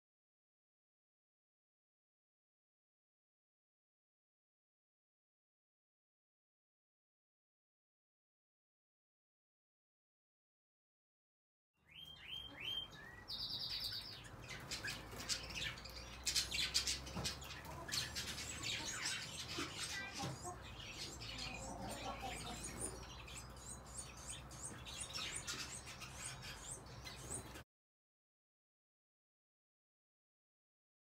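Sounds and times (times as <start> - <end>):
birds chirping and twittering: 11.8 - 27.6.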